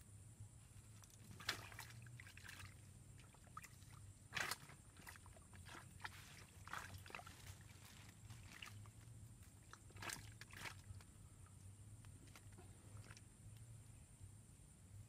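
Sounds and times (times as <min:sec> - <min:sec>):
steady low hum: 0:00.0 - 0:15.0
water splashing: 0:01.3 - 0:11.0.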